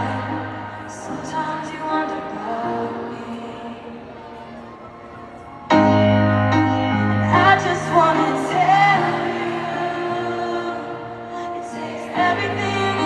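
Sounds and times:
woman singing a slow ballad: 0.0 - 4.2, 7.2 - 13.0
piano chords: 0.0 - 13.0.

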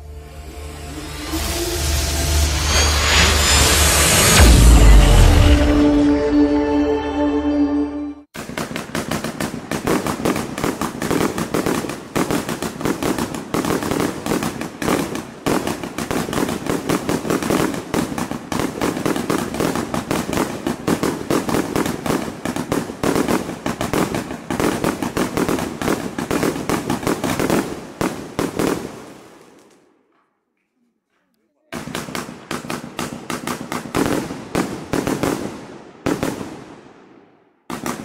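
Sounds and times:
firework cake barrage: 8.3 - 30.0, 31.1 - 38.0.

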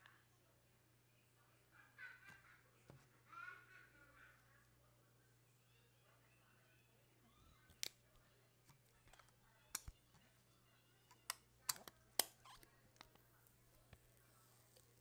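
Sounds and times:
fingers clicking and tapping phone: 11.1 - 13.2.

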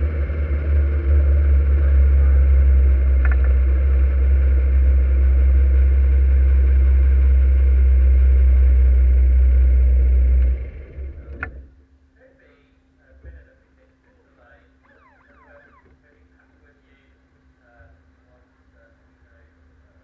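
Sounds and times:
race car engine idling: 0.0 - 11.5.

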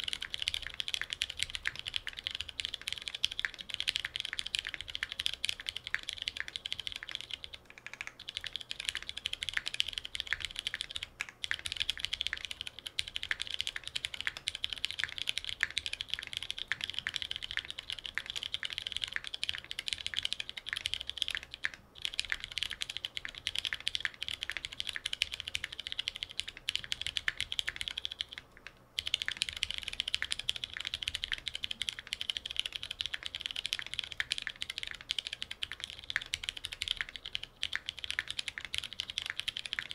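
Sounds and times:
fast mechanical keyboard typing: 0.0 - 39.9.

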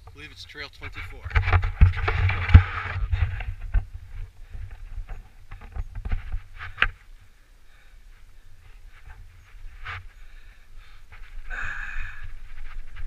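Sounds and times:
wind on camera: 0.9 - 7.0
bike rattling and knocking: 1.1 - 7.0
bike tyres rumbling on dirt: 1.1 - 7.0.

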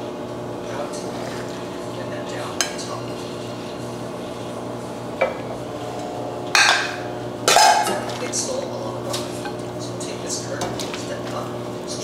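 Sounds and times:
steady low hum: 0.0 - 12.0
dishes clattering: 6.5 - 9.7.

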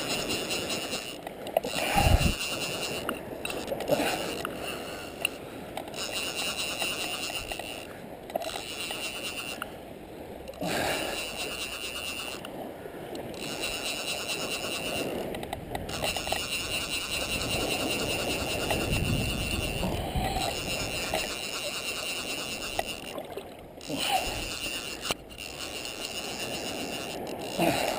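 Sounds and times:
fishing reel drag buzzing: 0.0 - 9.8, 10.5 - 27.9
water sloshing around legs: 13.3 - 27.9.

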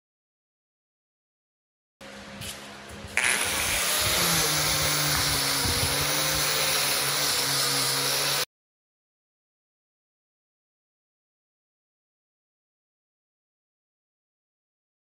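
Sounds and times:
angle grinder on rusty steel: 3.2 - 8.5.

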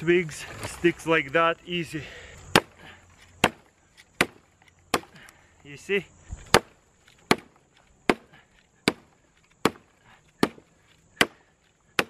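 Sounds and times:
axe chopping a branch: 2.5 - 5.3, 6.4 - 12.0.

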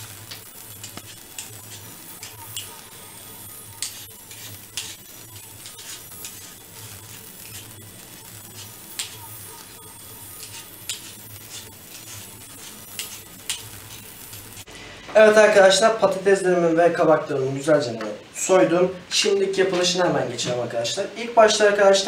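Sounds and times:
peeler scraping potato: 3.5 - 14.4.

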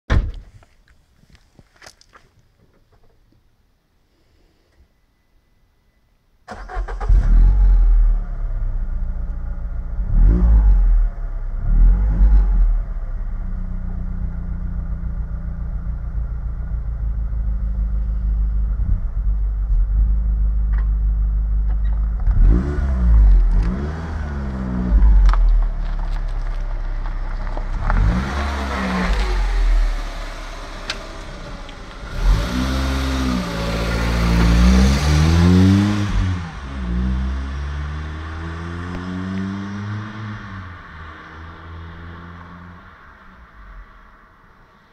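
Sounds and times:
car engine starting and revving: 6.5 - 43.8
car engine idling: 24.3 - 34.4.

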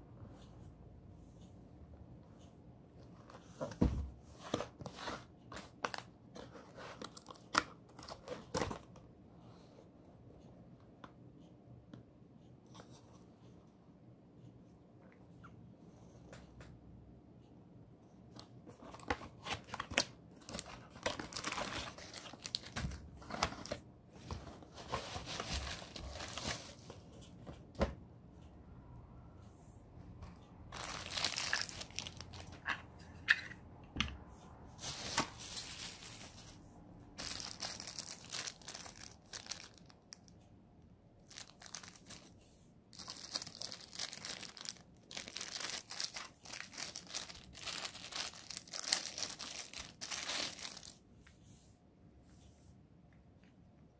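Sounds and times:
packaging crinkling and tearing: 18.9 - 23.8, 25.0 - 26.8, 30.8 - 32.6, 37.2 - 40.2, 41.2 - 42.3, 42.9 - 51.0.

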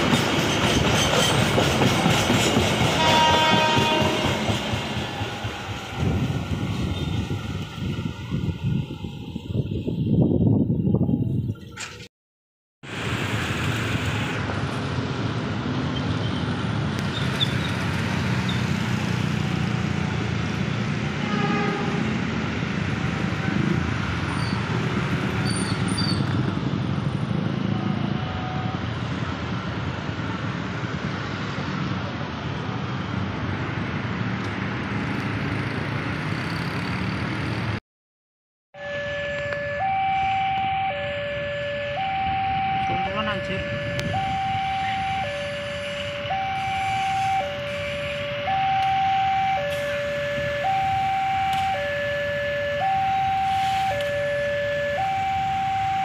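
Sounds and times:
car and motorbike engines: 12.9 - 37.8, 39.1 - 56.0.

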